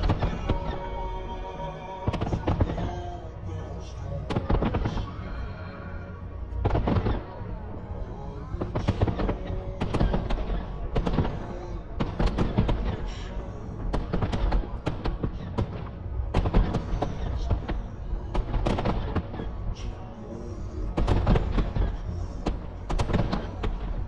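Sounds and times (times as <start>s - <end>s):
fireworks bangs and crackles: 0.0s - 1.0s, 2.0s - 3.1s, 4.3s - 5.2s, 6.6s - 7.4s, 8.6s - 19.8s, 20.9s - 24.0s
low rumble: 0.0s - 24.0s.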